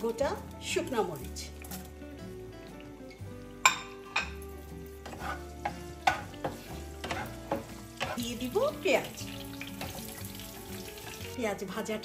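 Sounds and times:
onion and garlic sizzling in oil: 0.0 - 12.0
spoon clinking against pan: 3.6 - 8.2.

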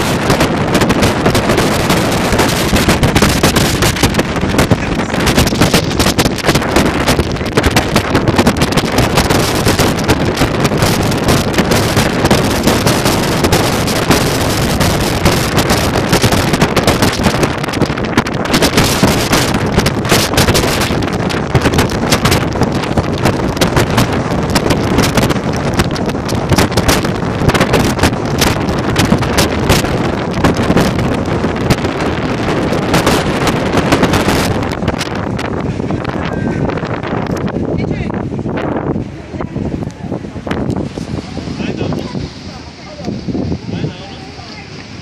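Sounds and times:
strong wind on microphone: 0.0 - 45.0.

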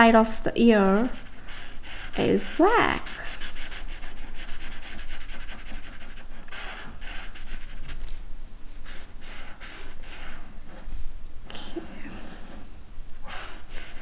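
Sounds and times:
marker scribbling on paper: 0.8 - 8.1, 8.8 - 10.9, 13.3 - 14.0.

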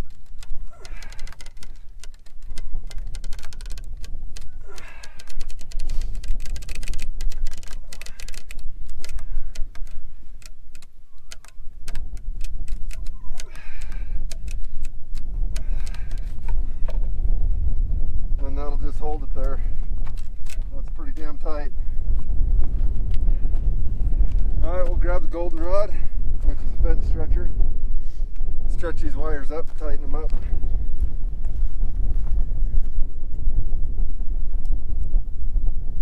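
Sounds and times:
wire clicking and scraping on metal: 0.0 - 17.0
wire creaking: 0.0 - 25.7
wind rumble on microphone: 0.0 - 36.0.

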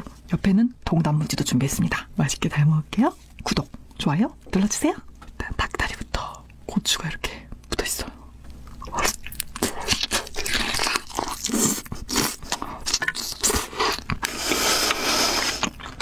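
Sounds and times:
crunchy chewing: 8.6 - 16.0.

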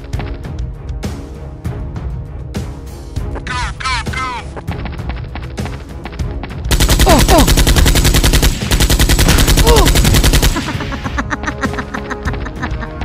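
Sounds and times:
background music: 0.0 - 13.0
automatic gunfire burst: 6.7 - 10.8.

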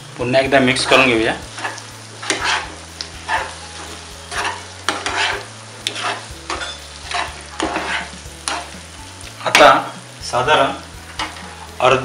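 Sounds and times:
plastic spatula scraping a pan: 0.8 - 3.6, 4.3 - 8.7.

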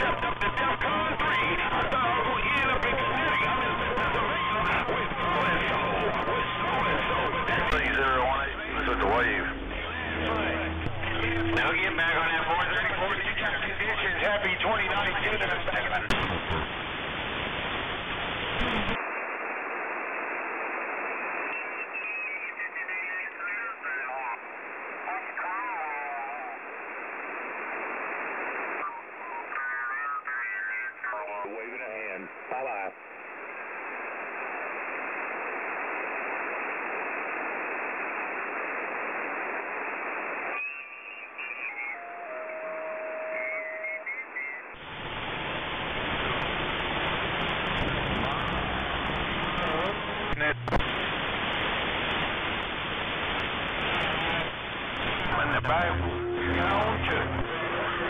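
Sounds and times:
radio receiver hiss and static: 0.0 - 58.0
whistling tones stepping down: 21.4 - 22.2, 40.6 - 44.0.

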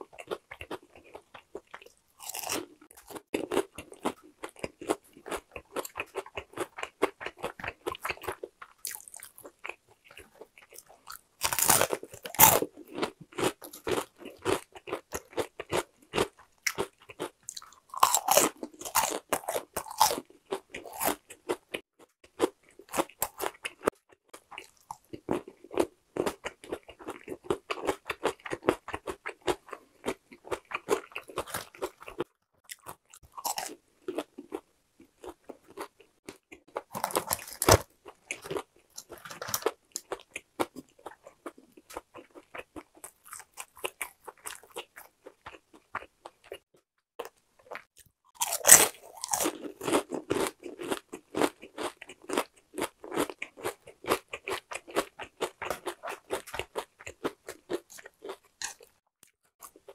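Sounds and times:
crunchy chewing: 0.0 - 46.6, 47.2 - 59.0.

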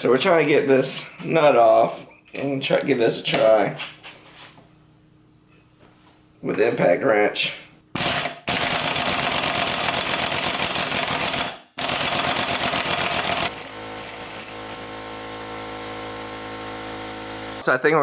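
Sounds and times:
steady low hum: 0.0 - 8.0, 12.4 - 18.0
impact wrench hammering: 8.0 - 14.8.

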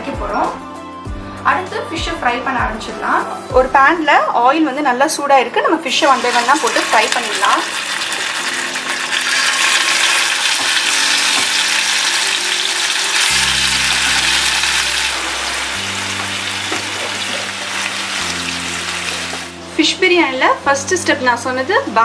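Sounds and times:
soft background music: 0.0 - 22.0
fish frying in hot oil: 5.9 - 19.6.

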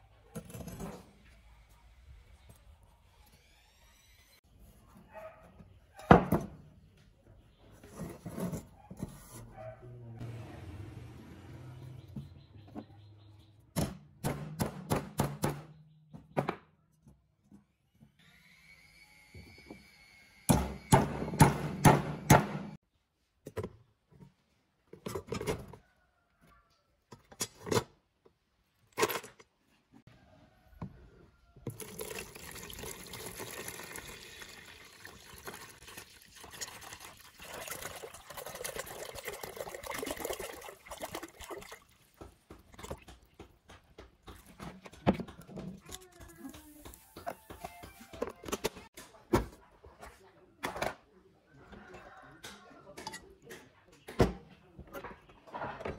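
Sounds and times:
liquid pouring into plastic tub: 31.7 - 42.2.

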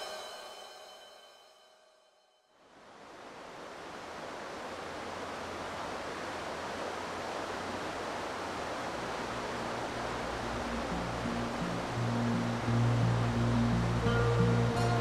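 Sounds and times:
fast-flowing river rushing: 2.9 - 15.0
low sustained music notes: 9.7 - 15.0.

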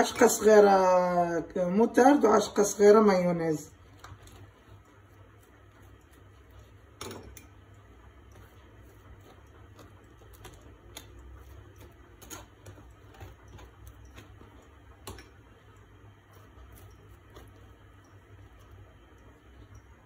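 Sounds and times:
knife scraping on bread: 8.3 - 14.4.

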